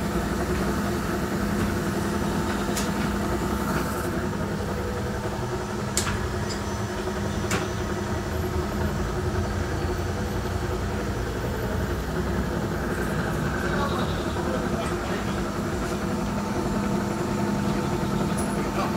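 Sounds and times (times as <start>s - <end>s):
machinery humming: 0.0s - 18.9s.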